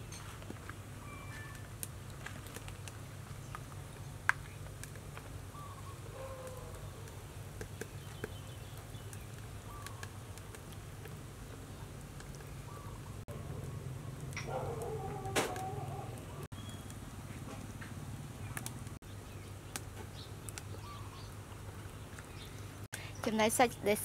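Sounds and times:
bird chirps: 0:07.8 - 0:10.1, 0:15.7 - 0:17.0, 0:20.1 - 0:21.4.

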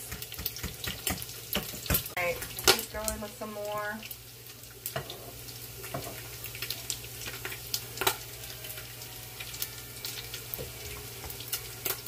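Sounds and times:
bacon sizzling with pops: 0:00.0 - 0:12.0.

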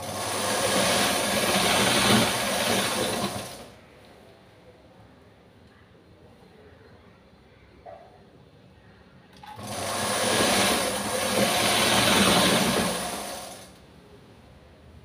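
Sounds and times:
hand-turned sewing machine running: 0:00.0 - 0:03.8, 0:09.4 - 0:13.8.

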